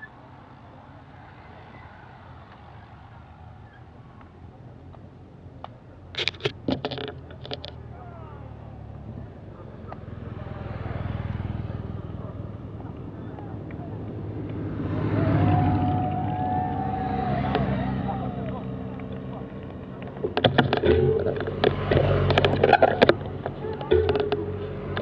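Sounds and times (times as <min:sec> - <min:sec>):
motorcycle engine approaching: 0:00.0 - 0:25.0
sharp knocks: 0:20.2 - 0:25.0.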